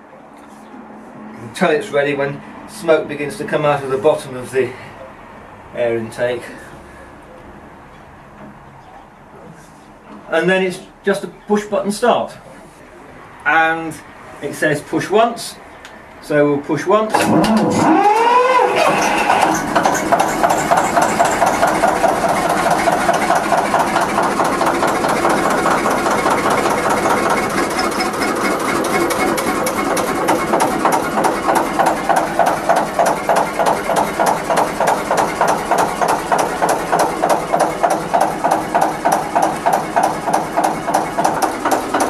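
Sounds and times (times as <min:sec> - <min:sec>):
diesel engine idling: 0:17.8 - 0:42.0.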